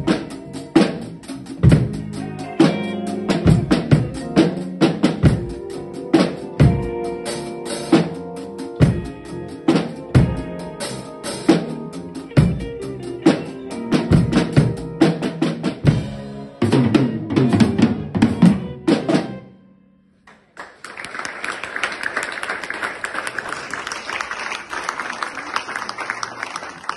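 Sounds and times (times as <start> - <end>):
drum kits playing: 0.0 - 19.6
audience applause: 20.3 - 26.9.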